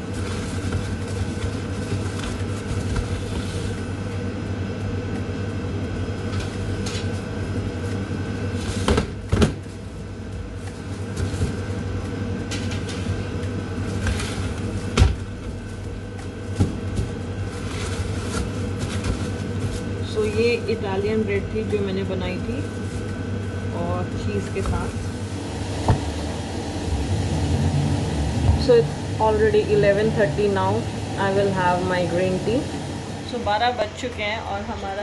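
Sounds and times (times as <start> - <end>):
kitchen equipment hum: 0.0 - 35.0.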